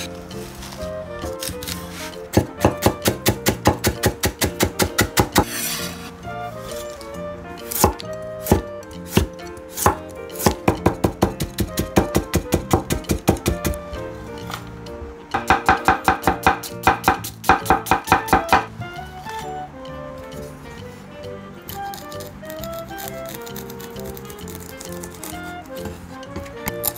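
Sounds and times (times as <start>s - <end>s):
knife chopping on wooden board: 2.3s - 5.8s, 7.7s - 13.8s, 15.4s - 18.7s.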